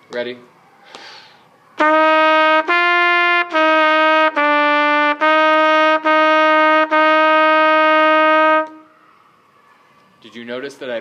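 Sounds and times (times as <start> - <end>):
trumpet playing slow notes: 1.8 - 8.9.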